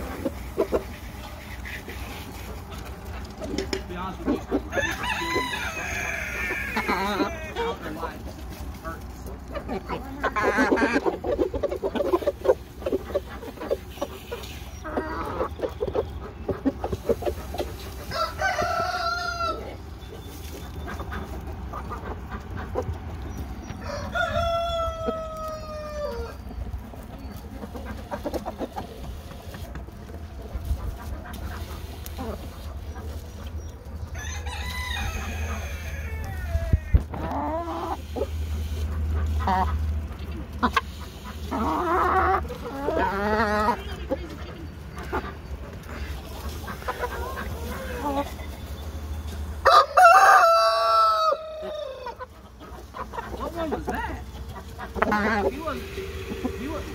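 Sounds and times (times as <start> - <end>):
chickens clucking: 0.0 - 56.9
chicken drawn-out pitched call: 4.4 - 8.0, 9.9 - 22.9, 23.6 - 26.6, 34.1 - 39.8, 45.0 - 56.9
rooster crowing: 4.7 - 7.6, 18.1 - 19.7, 23.8 - 26.4, 34.1 - 37.0, 49.6 - 52.2.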